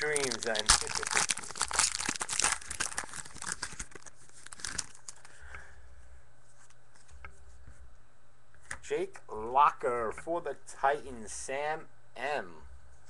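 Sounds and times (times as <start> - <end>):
cards ticking: 0.0 - 4.0
foil wrapper tearing and crinkling: 0.0 - 5.3.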